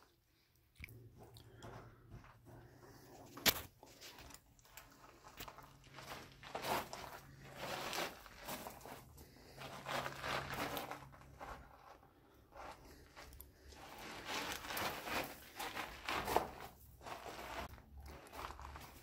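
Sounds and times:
footsteps on gravel: 3.9 - 11.8, 13.7 - 19.0.

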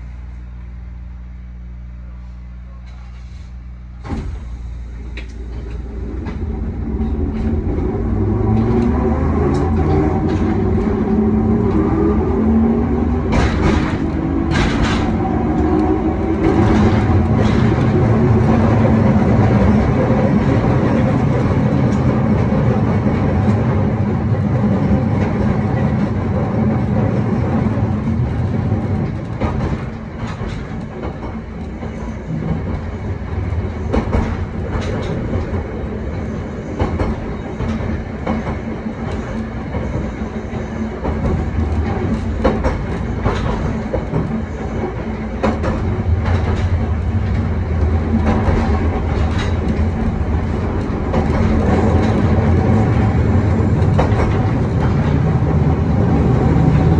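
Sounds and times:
tram motor whine: 0.0 - 56.9
wheels clicking over rail joints: 12.6 - 23.8, 27.8 - 56.9.

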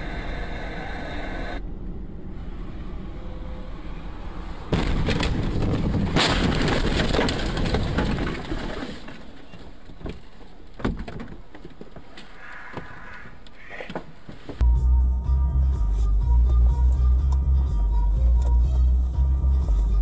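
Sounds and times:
road noise: 0.0 - 20.0
car crash impact: 4.7 - 10.2.

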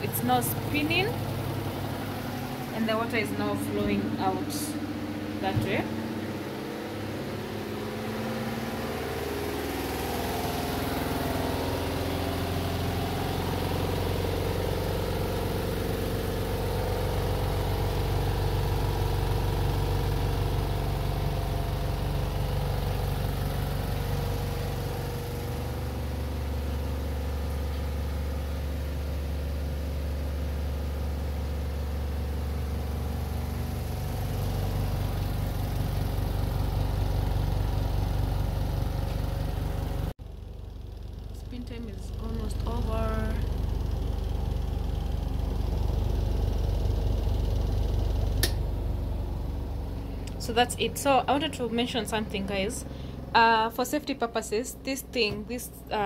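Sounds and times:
spin dryer humming: 0.0 - 40.1.

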